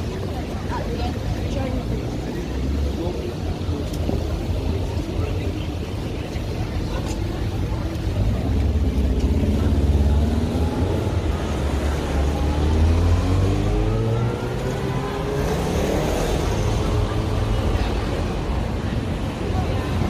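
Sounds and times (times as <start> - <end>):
vehicle engine accelerating: 8.0 - 18.5.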